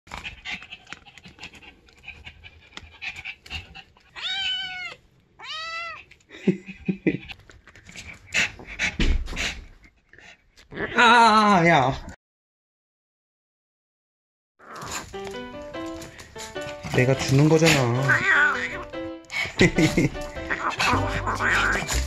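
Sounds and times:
kitten meowing: 4.2s - 6.0s, 18.0s - 18.8s, 20.5s - 22.0s
breathy noises: 14.6s - 22.0s.

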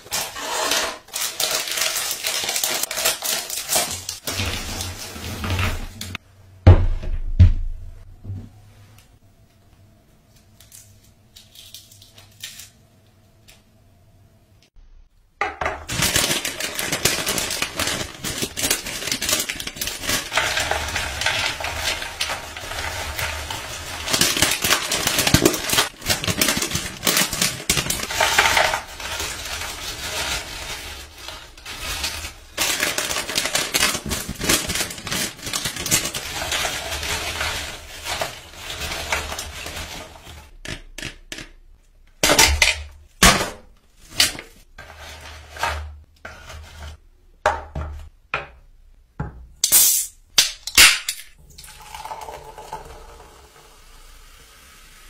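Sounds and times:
crinkly snack bags: 0.0s - 5.3s, 15.9s - 40.6s
crisps tumbling into plastic tray: 15.8s - 40.4s.

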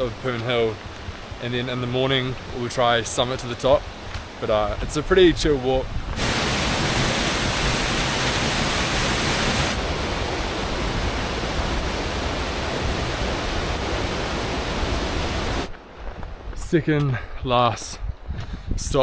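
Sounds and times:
stream rushing over rocks: 6.2s - 15.7s.

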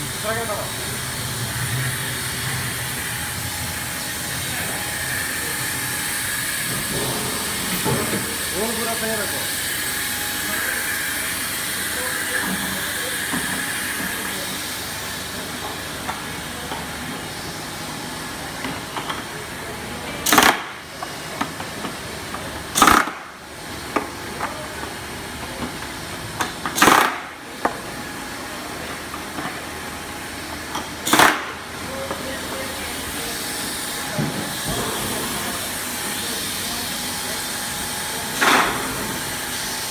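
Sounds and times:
pneumatic air bursts: 22.7s - 23.3s.

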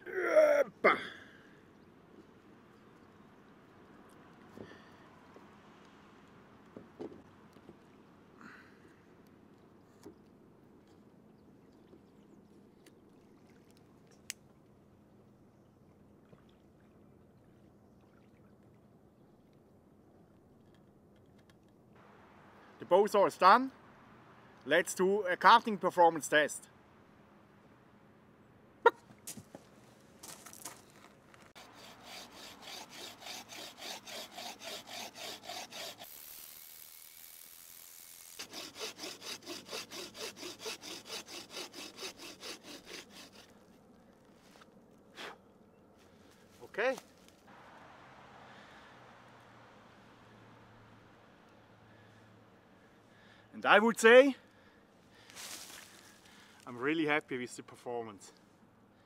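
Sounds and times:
faint outdoor hiss: 0.0s - 59.0s
bow saw cutting wood: 31.5s - 43.7s.

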